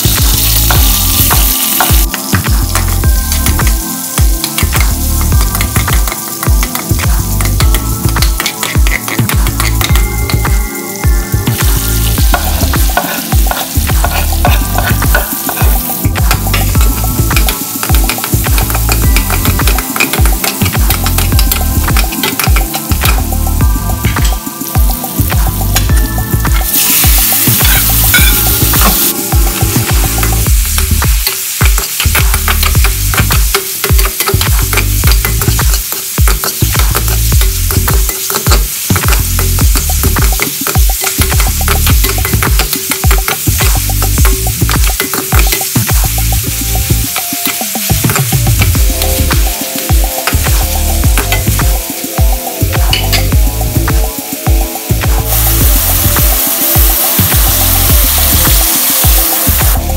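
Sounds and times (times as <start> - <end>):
onions sizzling in oil: 0.0 - 59.9
spoon clicking against pan: 2.8 - 10.4, 16.5 - 23.2, 30.2 - 39.6
metal spoon scraping pan: 4.4 - 10.4, 12.3 - 23.1.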